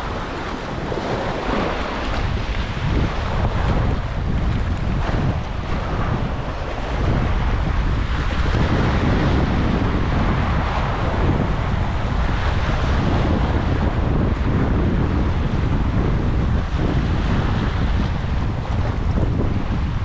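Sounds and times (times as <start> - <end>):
waves splashing over rocks: 0.0 - 14.4
wind buffeting microphone: 0.0 - 20.0.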